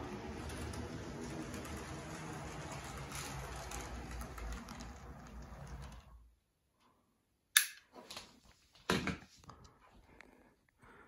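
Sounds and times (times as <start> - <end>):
wheels rattling on rails: 0.0 - 6.2.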